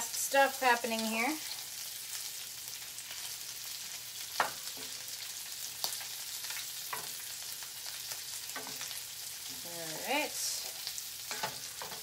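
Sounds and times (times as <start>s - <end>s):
shrimp sizzling in a pan: 0.0s - 12.0s.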